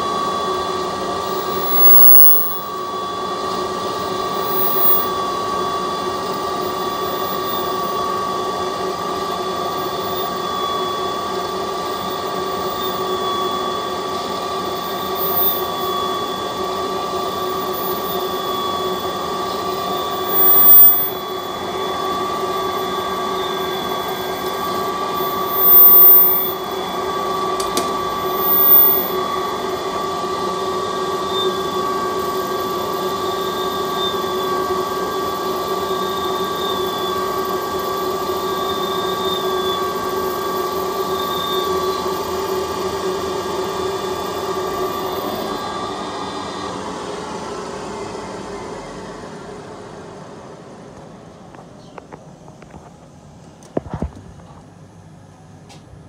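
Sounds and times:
lathe whining: 0.0s - 51.8s.

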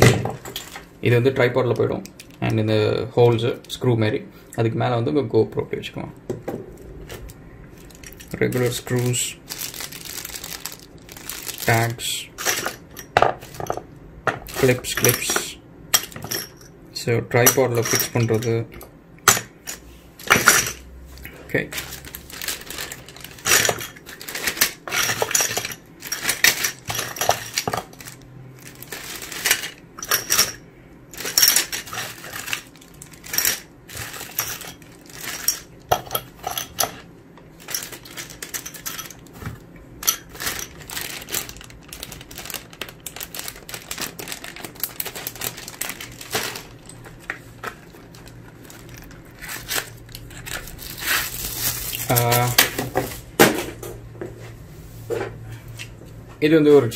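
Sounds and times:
small metal parts clinking in bags: 0.0s - 0.9s, 7.2s - 13.8s, 14.5s - 16.8s, 17.4s - 37.0s, 37.6s - 52.8s
plastic bags crinkling: 6.9s - 13.8s, 14.4s - 15.2s, 19.5s - 36.8s, 37.5s - 53.3s.

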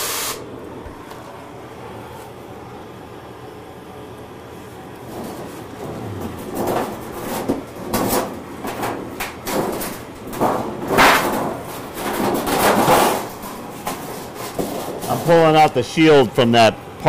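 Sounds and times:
cutting torch hissing and sputtering: 0.0s - 0.4s.

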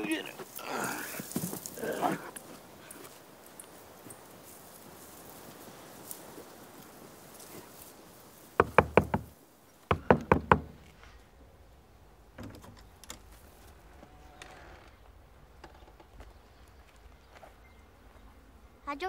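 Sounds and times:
knocking on wooden door: 8.6s - 9.3s, 9.9s - 10.8s.

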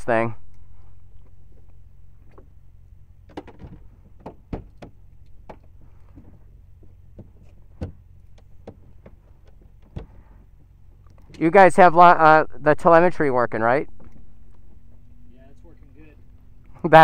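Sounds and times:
low steady hum: 0.0s - 17.0s
faint clicks and knocks: 3.3s - 11.4s.

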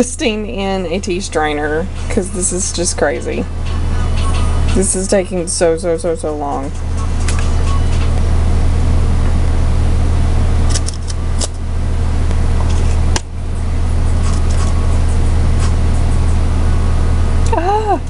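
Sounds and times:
loud steady low hum: 0.0s - 18.0s.

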